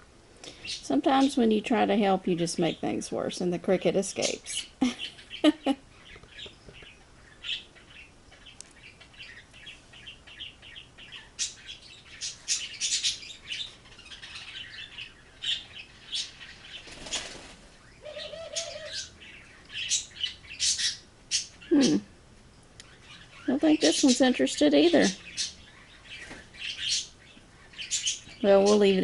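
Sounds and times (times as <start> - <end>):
birds chirping: 0.0 - 29.0
wavering coo: 18.0 - 19.1.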